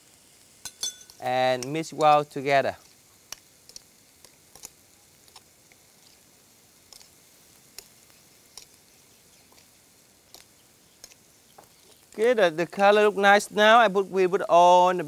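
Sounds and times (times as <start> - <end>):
low hiss: 0.0 - 15.0
metal spoon tapping glass bowl: 0.6 - 1.2.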